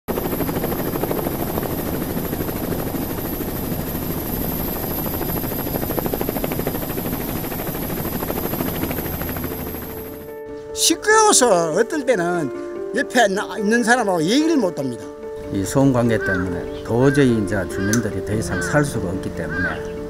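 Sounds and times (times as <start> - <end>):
helicopter rotor beating: 0.1 - 10.4.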